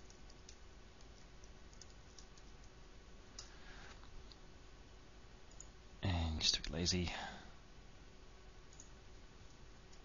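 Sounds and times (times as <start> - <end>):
keyboard and mouse clicks: 0.0 - 3.5, 8.7 - 10.0.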